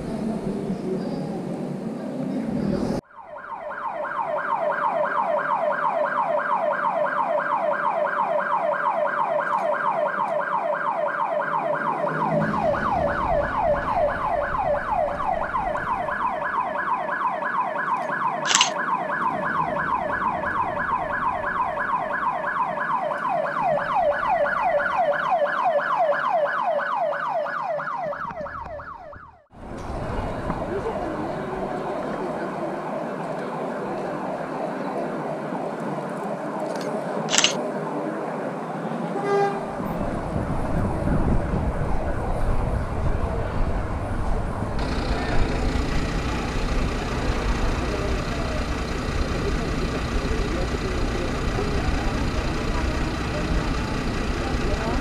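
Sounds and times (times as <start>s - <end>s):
electronic siren yelping: 3.1s - 29.5s
sharp click: 18.5s - 18.8s, 36.7s - 37.6s.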